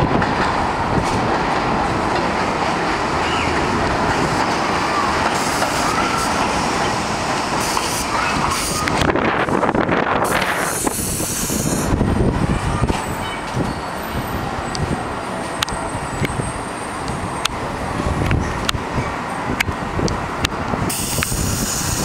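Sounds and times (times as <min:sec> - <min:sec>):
wheels rumbling on rails: 0:00.0 - 0:22.0
train hiss: 0:05.2 - 0:12.0, 0:20.9 - 0:22.0.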